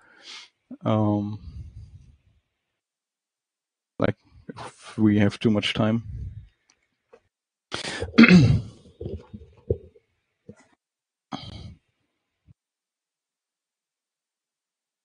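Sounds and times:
breathy noise: 0:07.7 - 0:10.0
man clearing his throat: 0:07.8 - 0:09.3, 0:11.3 - 0:11.8.

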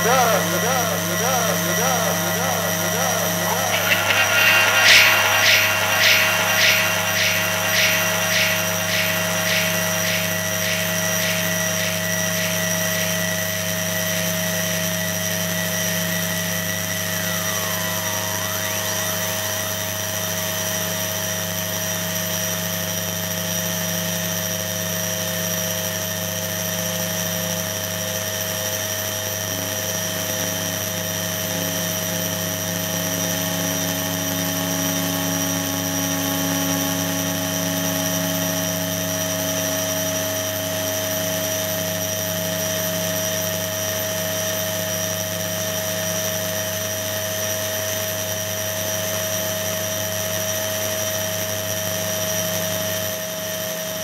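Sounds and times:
rapid electronic pulsing: 0:00.0 - 0:14.1
electronic hiss: 0:00.0 - 0:14.3, 0:16.5 - 0:21.4
buzzing electronic drone: 0:00.0 - 0:15.4.

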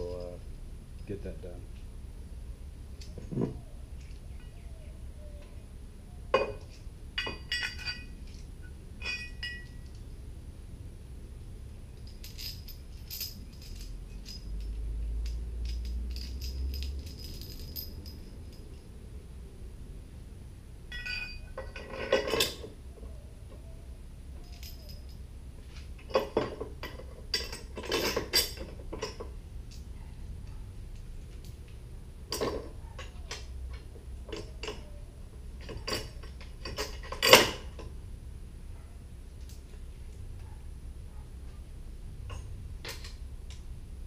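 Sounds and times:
metal bolts and washers clinking: 0:06.3 - 0:10.1, 0:11.9 - 0:18.9, 0:20.9 - 0:23.7, 0:24.4 - 0:31.7, 0:32.3 - 0:38.0, 0:42.2 - 0:43.6.

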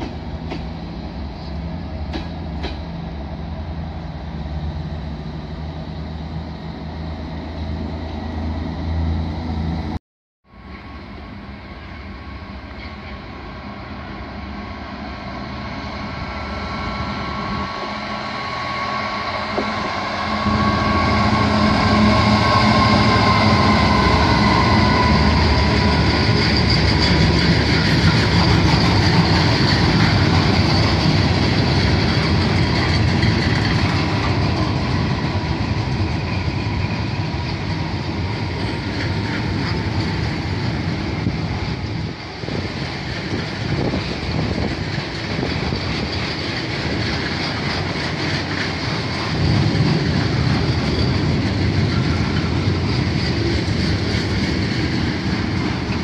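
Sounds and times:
diesel locomotive passing: 0:00.0 - 0:56.0
wagons rumbling past: 0:16.8 - 0:56.0.

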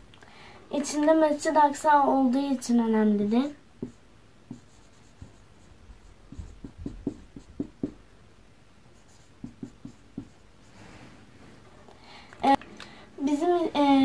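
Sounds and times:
marker writing on whiteboard: 0:03.8 - 0:05.6, 0:06.3 - 0:08.0, 0:09.0 - 0:10.4.

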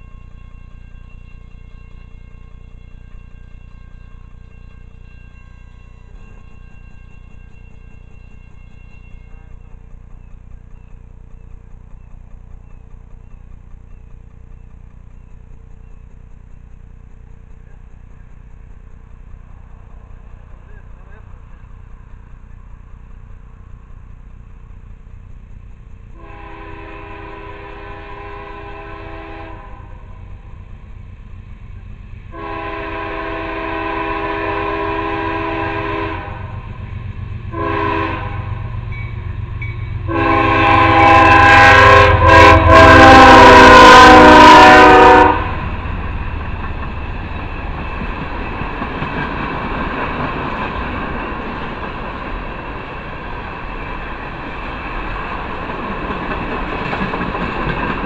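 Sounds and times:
train wheels clattering: 0:00.0 - 0:58.0
diesel rumble: 0:07.4 - 0:58.0
locomotive air horn blasts: 0:26.2 - 0:30.2, 0:32.3 - 0:36.7, 0:37.5 - 0:38.7, 0:39.9 - 0:45.7.

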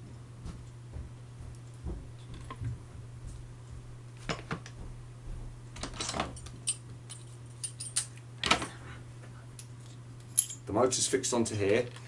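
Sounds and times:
steady low hum: 0:00.0 - 0:12.0
light metallic clinks and taps: 0:09.6 - 0:10.7.

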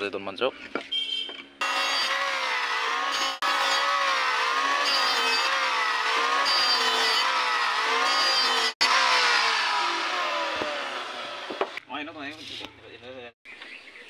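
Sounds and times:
electric planer shaving wood: 0:01.6 - 0:11.8.

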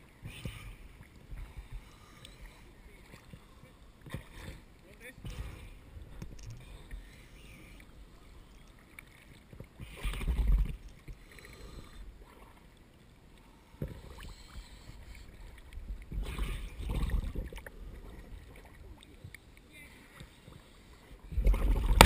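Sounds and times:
rushes of water: 0:00.0 - 0:22.0
water sloshing and splashing: 0:00.0 - 0:22.0.

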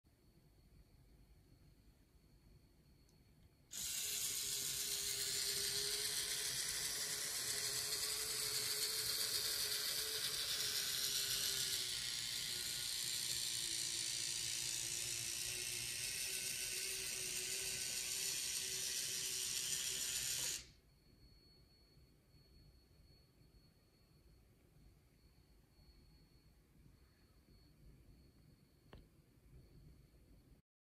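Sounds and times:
toy train electric motor humming: 0:03.7 - 0:20.8.

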